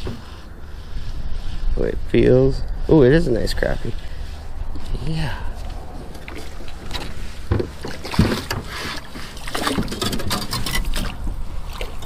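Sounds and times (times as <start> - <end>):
wind rumbling on microphone: 0.0 - 12.0
knocks against boat: 7.5 - 8.7.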